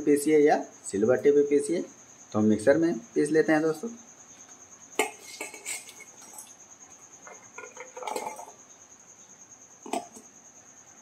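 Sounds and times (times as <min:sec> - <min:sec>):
food dropped into steel jar: 0:07.2 - 0:08.6, 0:09.8 - 0:10.3.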